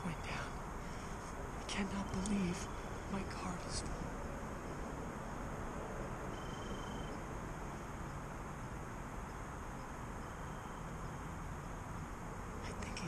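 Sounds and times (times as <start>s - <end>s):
faint high hum: 0.0s - 13.0s
thin whistle-like tone: 6.3s - 7.2s.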